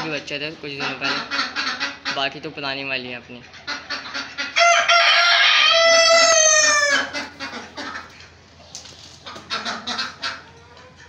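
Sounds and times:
chickens clucking: 0.0s - 11.0s
rooster crowing: 4.6s - 7.2s.

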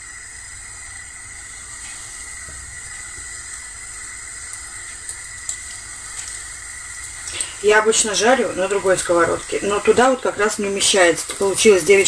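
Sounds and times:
hot oil hissing in a frying pan: 0.0s - 12.0s
faint clicks: 4.5s - 6.4s.

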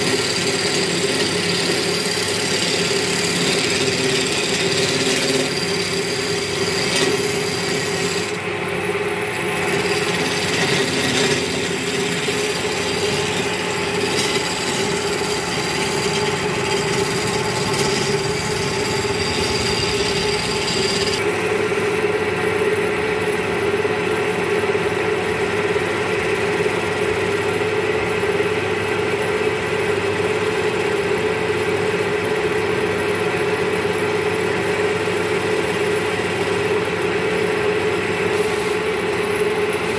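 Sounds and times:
chisel scraping spinning wood: 0.0s - 22.1s, 33.8s - 39.9s
wood lathe motor hum: 0.0s - 24.5s, 33.1s - 39.9s.

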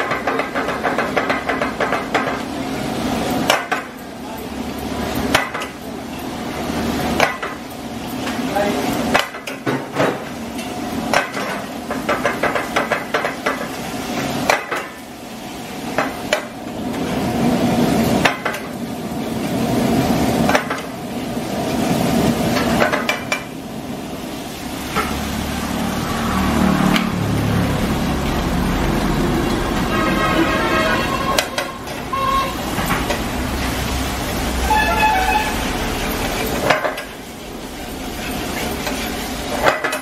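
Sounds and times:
oil sizzling: 0.0s - 40.0s
metal spatula scraping a frying pan: 29.9s - 33.2s, 34.4s - 37.1s.

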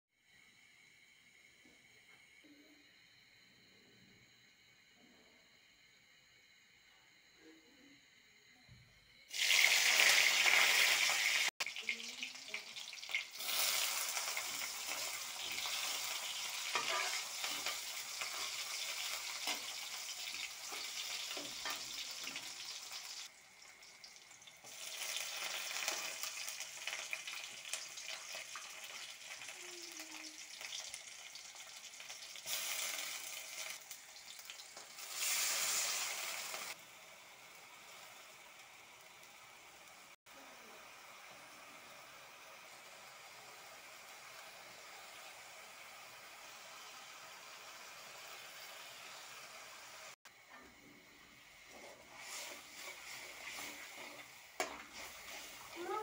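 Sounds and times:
onions sizzling in hot oil: 9.3s - 56.0s
metal spatula scraping pan: 16.6s - 19.8s, 51.7s - 55.8s.

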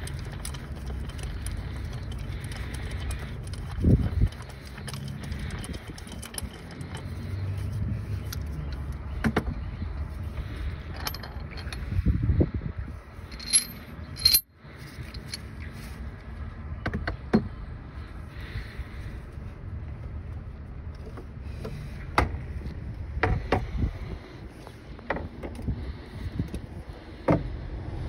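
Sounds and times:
low steady hum: 0.0s - 28.0s
ringing metal clinks: 13.3s - 14.5s.

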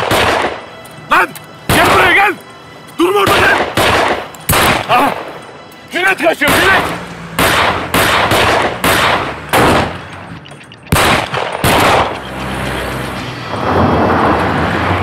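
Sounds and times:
gunshots: 0.0s - 0.6s, 1.7s - 2.2s, 3.2s - 5.4s, 6.4s - 10.2s, 10.9s - 12.3s
car engine approaching: 5.3s - 15.0s.

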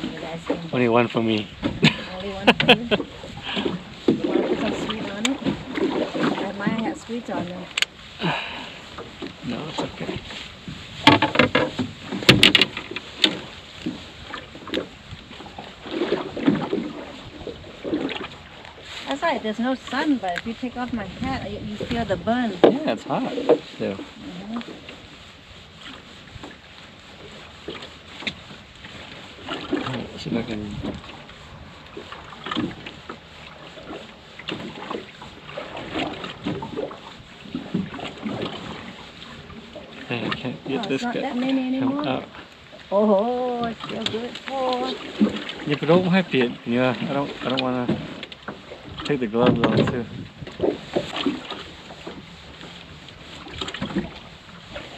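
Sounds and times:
water noise: 0.0s - 54.9s
wind and sea hiss: 0.0s - 54.9s
dull thump: 11.0s - 13.4s, 49.4s - 51.2s.

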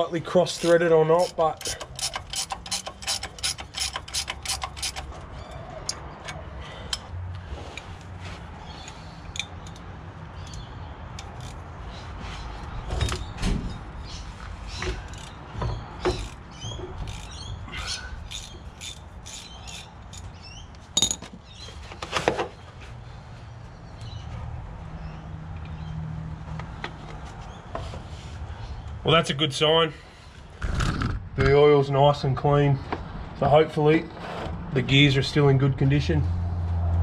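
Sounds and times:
ratchet wrench clicking: 0.5s - 5.1s, 8.8s - 11.6s, 17.0s - 20.4s.

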